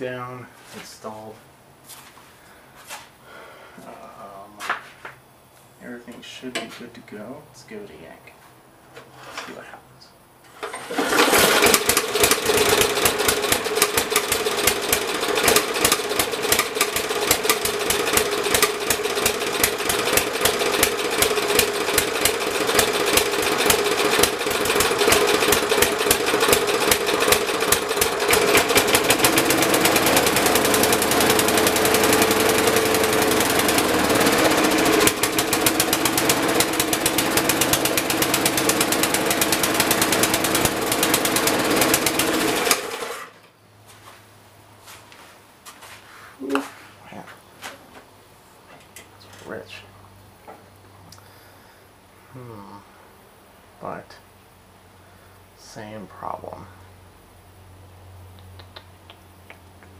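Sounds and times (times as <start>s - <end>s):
recoil starter pull: 10.5s - 43.3s
mower engine running: 10.5s - 43.4s.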